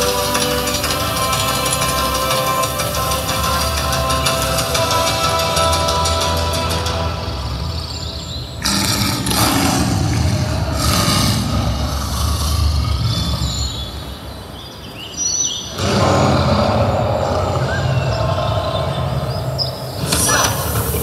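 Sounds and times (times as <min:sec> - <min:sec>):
city ambience rumble: 0:00.0 - 0:21.0.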